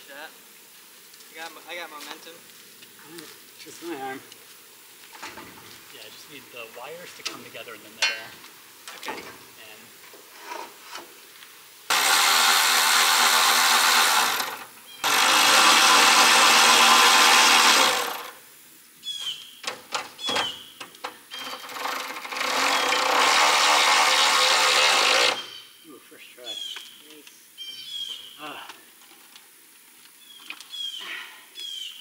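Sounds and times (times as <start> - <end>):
power drill driving screws: 11.9 - 18.4, 21.3 - 25.6.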